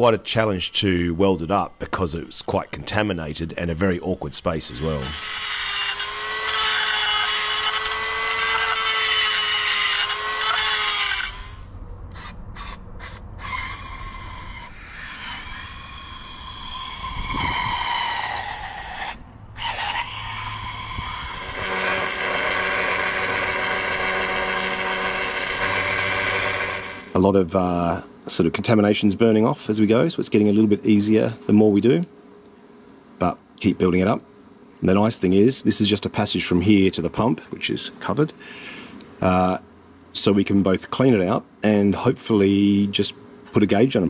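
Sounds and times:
rotary tool grinding whine: 0.0 - 27.2
welding buzz: 4.7 - 27.2.

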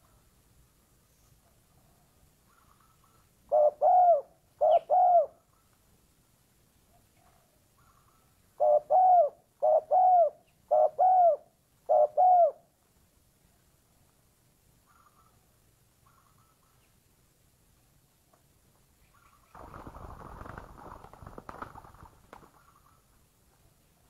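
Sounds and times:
dove cooing: 3.5 - 5.4, 8.6 - 12.7.

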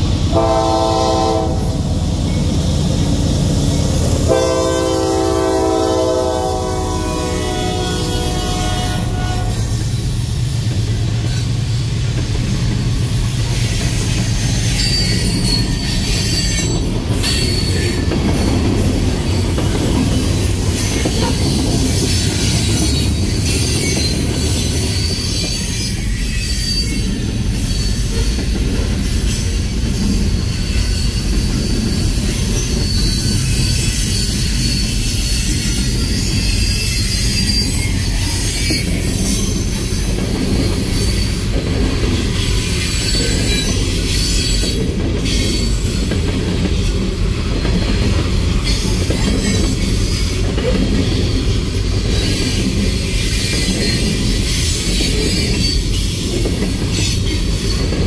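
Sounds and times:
train wheels rumbling on rail: 0.0 - 58.0
high-pitched wheel squeal: 13.4 - 18.5, 19.1 - 28.5, 29.1 - 46.1, 47.5 - 58.0.

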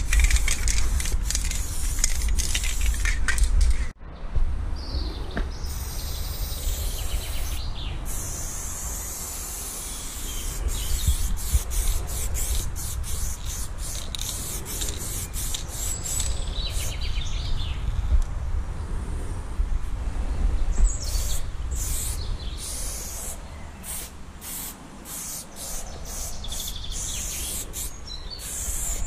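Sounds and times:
spray can hissing: 0.0 - 3.2, 5.7 - 17.0, 21.0 - 29.0.

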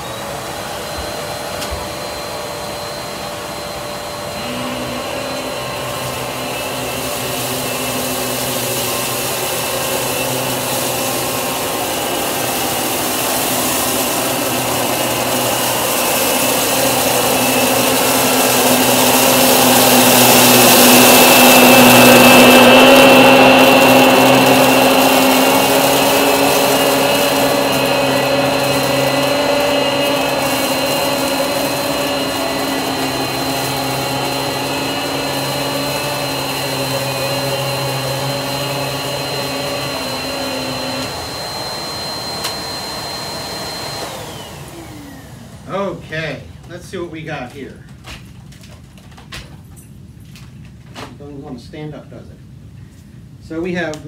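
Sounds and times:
vacuum motor whine: 0.0 - 47.0.

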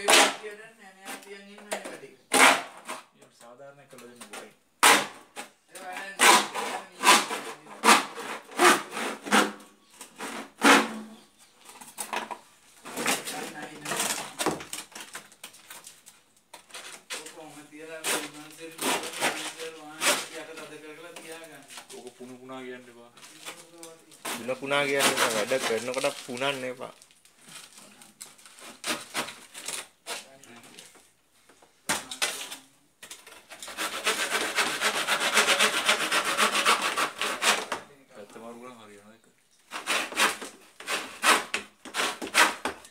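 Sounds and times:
hand saw rasping strokes: 6.0 - 9.6, 18.0 - 20.5, 24.3 - 26.1, 33.4 - 37.7, 39.7 - 42.9.

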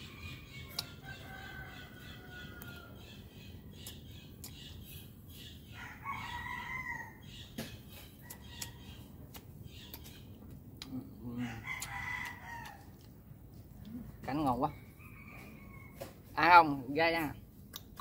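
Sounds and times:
rooster crowing: 1.0 - 3.0, 5.8 - 7.2.

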